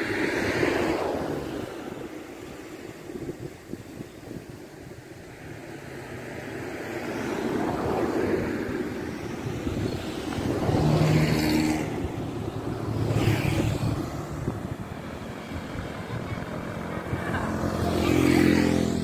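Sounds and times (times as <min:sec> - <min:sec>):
traffic passing: 0:00.0 - 0:19.0.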